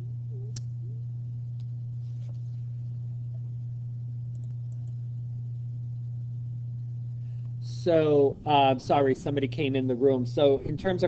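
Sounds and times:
low hum: 0.0 - 11.0
faint clicks: 4.3 - 5.0.

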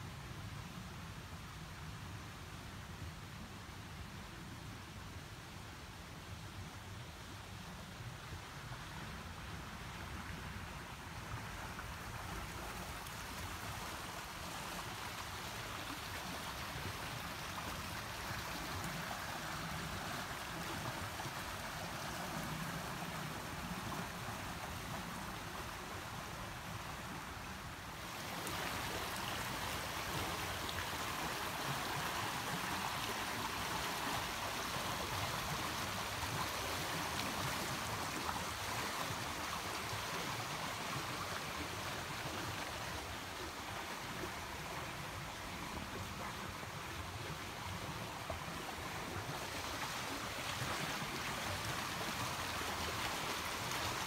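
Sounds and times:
stream water flowing: 0.0 - 54.0.

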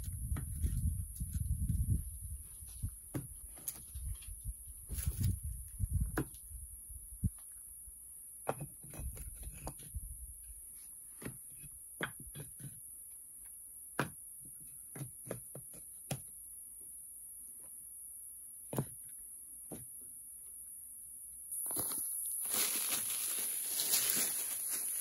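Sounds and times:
steady high-pitched hiss: 16.3 - 25.0.

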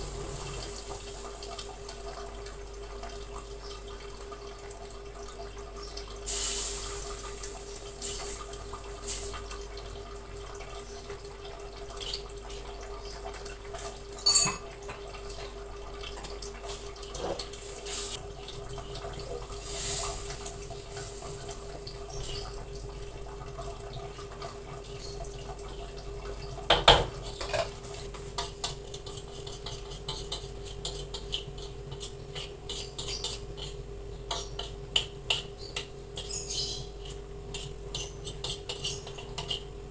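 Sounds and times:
utensils scraping a metal wok: 28.9 - 34.8, 37.0 - 39.6.

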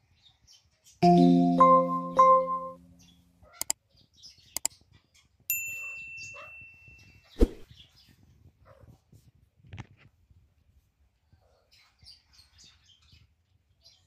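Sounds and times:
bell-like ding: 1.0 - 3.0, 5.5 - 7.1.

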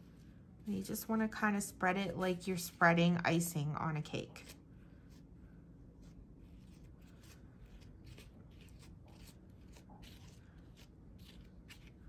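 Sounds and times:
knife scraping spackle: 6.0 - 12.0.

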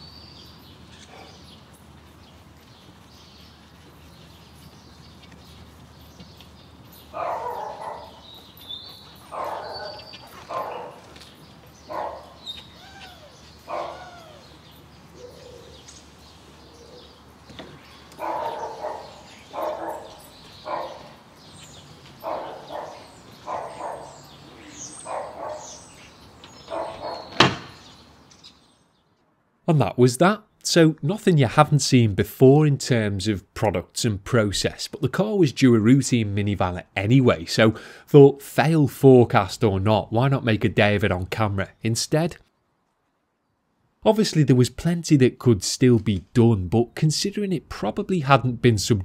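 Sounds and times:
dog barking: 7.1 - 8.2, 9.3 - 11.1, 11.9 - 12.4, 13.7 - 14.4, 18.2 - 21.2, 22.2 - 24.3, 25.0 - 25.8, 26.6 - 27.4.

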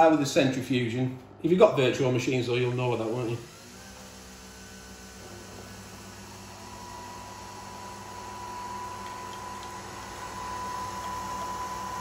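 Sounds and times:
coffee machine humming: 2.6 - 12.0.

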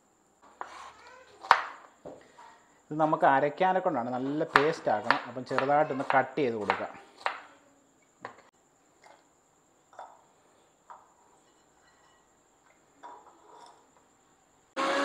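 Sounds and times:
knife cutting on a board: 0.5 - 1.7.

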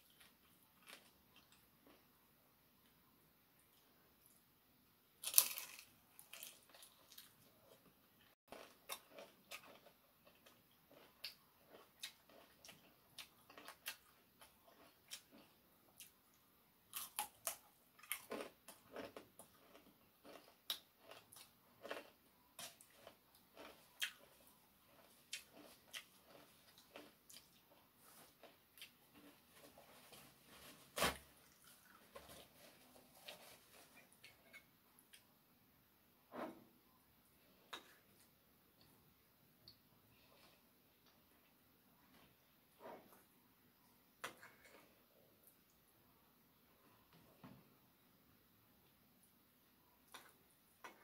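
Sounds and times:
crunching and chewing fried chicken: 0.0 - 2.2, 5.2 - 30.4.

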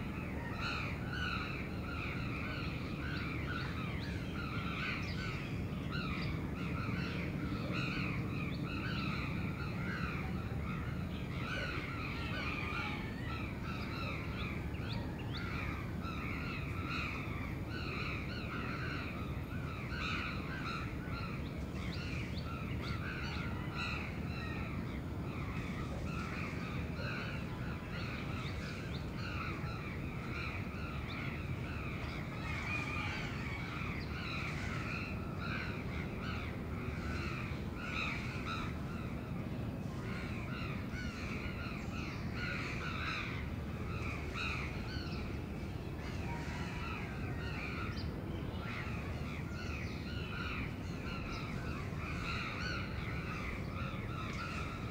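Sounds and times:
low city rumble: 0.0 - 54.9.

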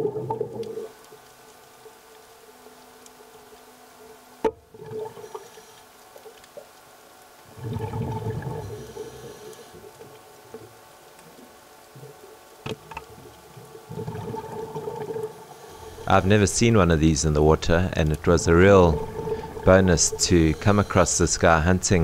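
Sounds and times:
faint steady hum: 0.0 - 22.0
underwater air bubbles gurgling: 7.5 - 10.0, 13.2 - 22.0.

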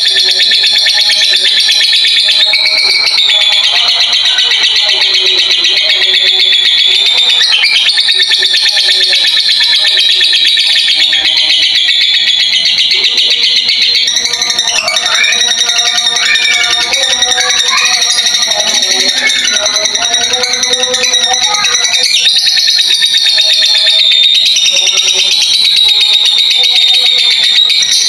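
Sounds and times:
lovebird chattering shrill chirps: 0.0 - 25.8.

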